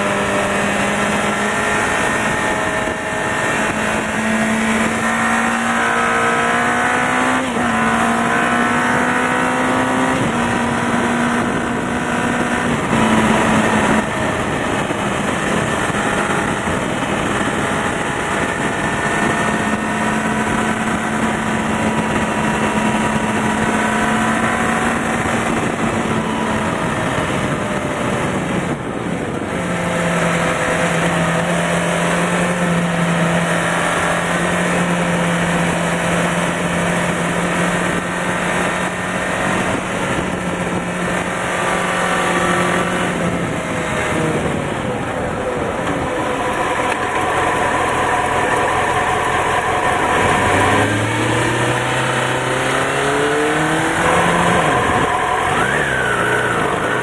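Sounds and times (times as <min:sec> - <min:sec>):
motorcycle engine revving: 0:00.0 - 0:57.0
wind rush: 0:00.0 - 0:57.0.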